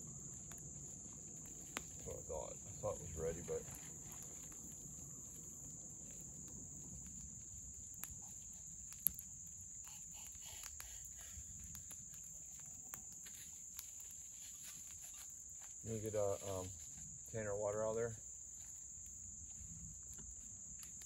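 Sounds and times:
insects trilling: 0.0s - 21.0s.

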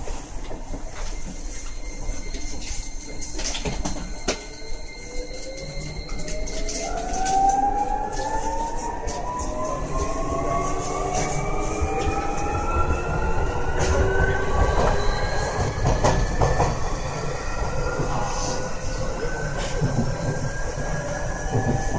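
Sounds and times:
train wheels rumbling on track: 9.1s - 21.9s.

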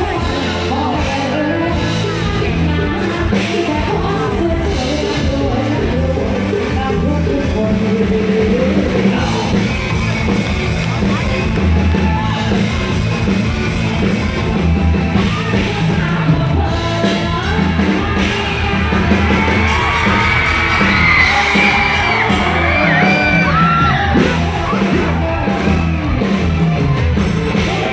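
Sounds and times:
woman singing into microphone: 0.0s - 9.5s, 15.2s - 19.8s
live band music over speakers: 0.0s - 27.9s
crowd yelling: 8.8s - 16.1s, 17.6s - 27.9s.

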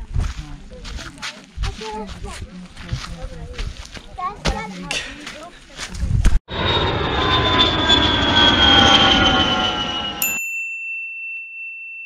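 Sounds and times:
airplane passing: 6.5s - 10.3s
bright chime: 9.8s - 12.0s.

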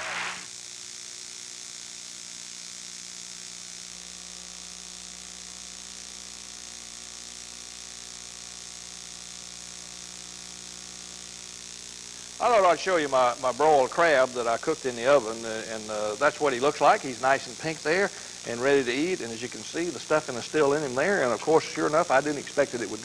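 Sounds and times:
electrical hum: 0.0s - 0.5s, 12.3s - 23.0s
high hiss: 0.0s - 0.6s, 12.4s - 23.0s.

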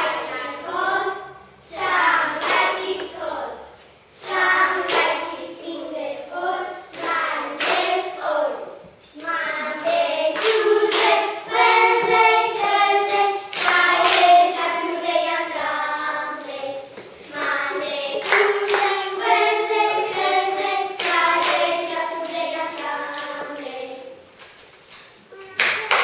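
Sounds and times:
children singing together: 0.0s - 24.3s
hand clapping: 7.0s - 7.9s, 9.8s - 11.3s, 13.5s - 15.1s, 17.4s - 19.3s, 21.0s - 23.8s, 25.6s - 26.0s.

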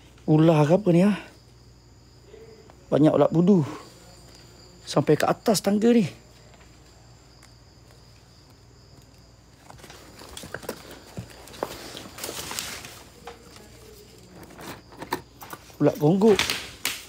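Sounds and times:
crickets trilling: 0.0s - 17.0s
footsteps through undergrowth: 6.3s - 14.2s.

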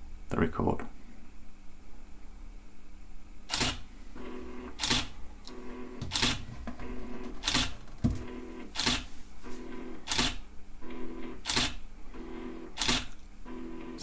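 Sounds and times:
camera shutter firing: 3.5s - 3.9s, 4.8s - 5.1s, 6.1s - 6.4s, 7.4s - 7.7s, 8.7s - 9.0s, 10.0s - 10.4s, 11.4s - 11.8s, 12.8s - 13.1s
turntable motor hum: 3.5s - 14.0s.

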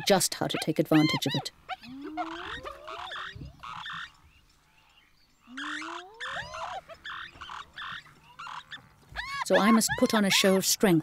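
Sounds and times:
harsh hyena calls: 0.0s - 4.1s, 5.4s - 10.8s
hyena whooping: 0.9s - 4.0s, 5.5s - 8.6s.

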